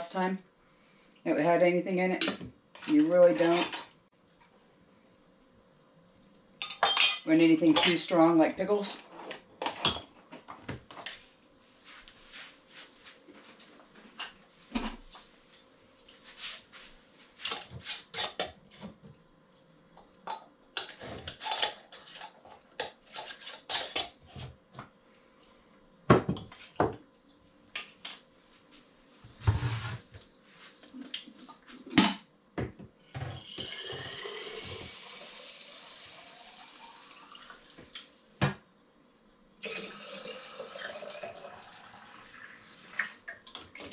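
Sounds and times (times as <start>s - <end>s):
water pouring into glass jar: 33.4s - 37.7s, 39.6s - 42.6s.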